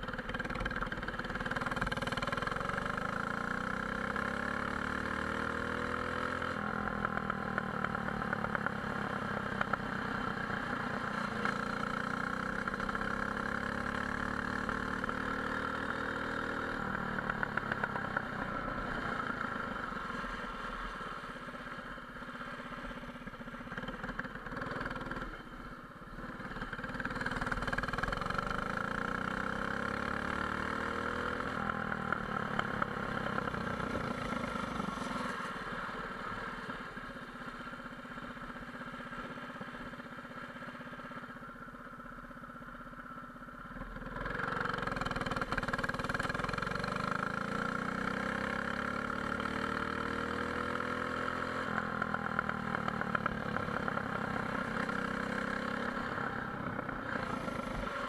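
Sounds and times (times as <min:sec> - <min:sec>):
go-kart engine revving: 0:26.3 - 0:35.2, 0:44.0 - 0:58.0.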